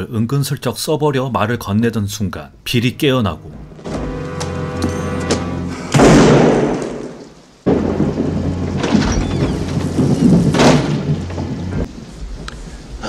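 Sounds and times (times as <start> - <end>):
heavy rain: 3.6 - 13.0
thunderclap: 5.3 - 12.6.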